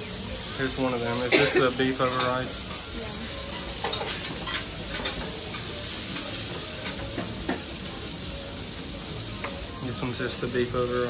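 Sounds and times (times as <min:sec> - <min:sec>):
beef sizzling on a grill: 0:00.0 - 0:11.0
utensils clicking and clinking: 0:03.4 - 0:07.7.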